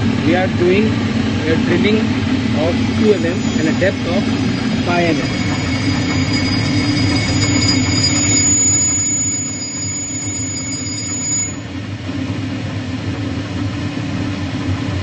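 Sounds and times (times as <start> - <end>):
high drill whine: 1.4 - 11.8
drill motor hum: 1.8 - 11.7.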